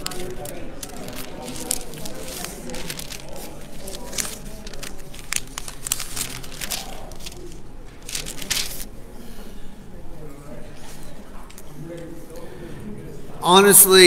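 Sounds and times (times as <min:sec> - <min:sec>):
paper rustling and crinkling: 0:00.0 - 0:09.0.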